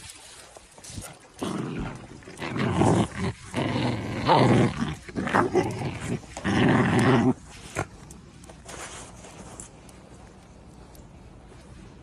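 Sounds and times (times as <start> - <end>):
small dog growling: 1.4 - 7.9.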